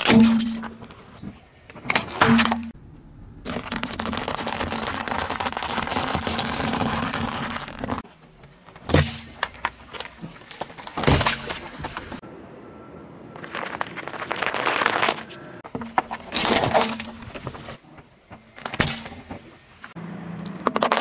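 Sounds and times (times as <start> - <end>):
dry pasta crackling under tyre: 3.4 - 8.1, 13.4 - 17.5, 20.6 - 21.0
sharp cracks under tyre: 20.6 - 21.0.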